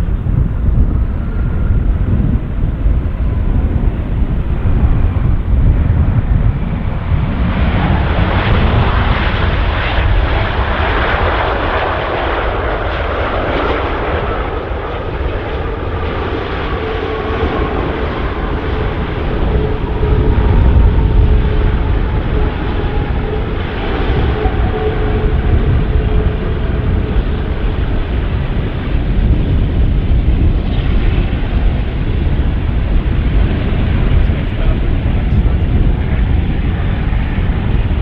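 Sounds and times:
jet engines rumbling: 0:00.0 - 0:38.0.

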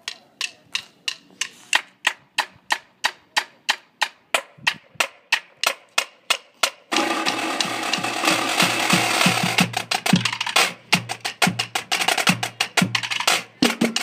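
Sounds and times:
marching snare drumline: 0:06.9 - 0:14.0.

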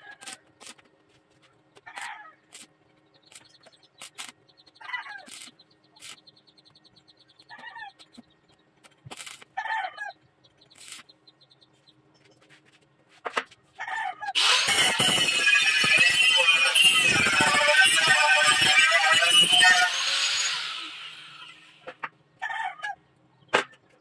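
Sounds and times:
arc welding crackling bursts: 0:05.3 - 0:06.2, 0:09.1 - 0:09.4, 0:10.8 - 0:11.1, 0:14.4 - 0:21.9.

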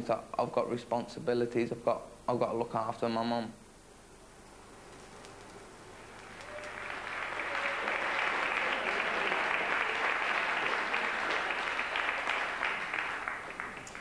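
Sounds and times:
group of people clapping: 0:06.2 - 0:14.0.

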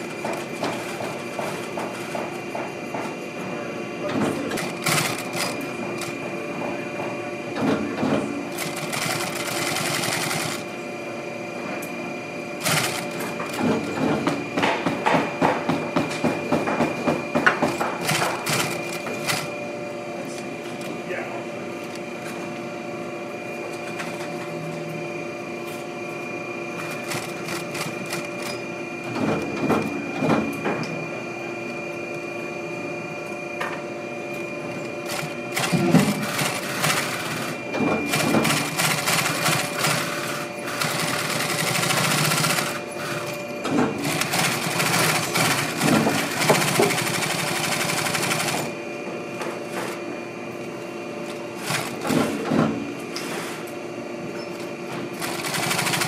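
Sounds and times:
steady machine hum: 0:00.0 - 0:56.0
sewing machine stitching leather: 0:04.5 - 0:06.1, 0:08.5 - 0:10.7, 0:12.6 - 0:14.0, 0:35.1 - 0:43.4, 0:55.2 - 0:56.0.

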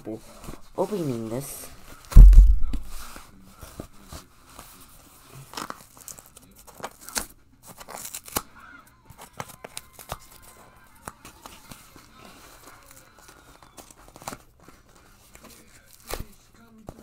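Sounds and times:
package tearing and crinkling: 0:05.5 - 0:08.5.

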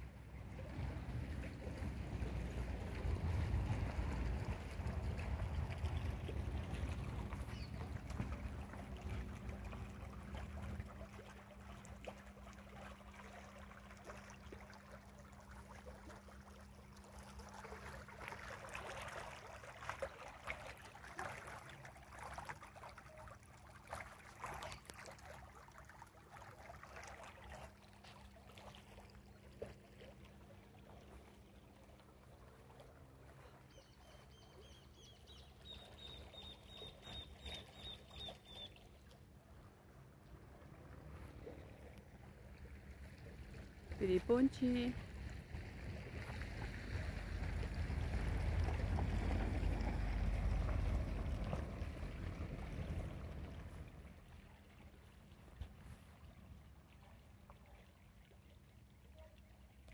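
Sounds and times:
soft crackles and rustles: 0:55.3 - 0:56.6.

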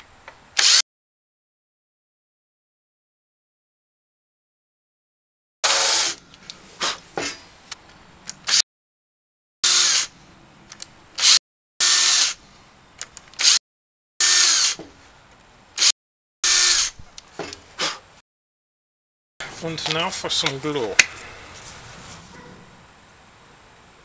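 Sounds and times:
cordless drill boring wood: 0:00.6 - 0:00.8, 0:05.6 - 0:06.2, 0:09.6 - 0:10.1, 0:11.2 - 0:12.4, 0:14.2 - 0:14.8, 0:15.8 - 0:17.0.

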